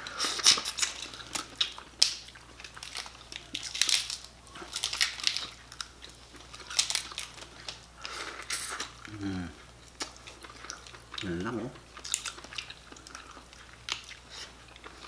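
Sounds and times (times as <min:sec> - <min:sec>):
person chewing: 0:00.0 - 0:15.0
crab shells cracking: 0:00.4 - 0:09.0, 0:11.9 - 0:14.2.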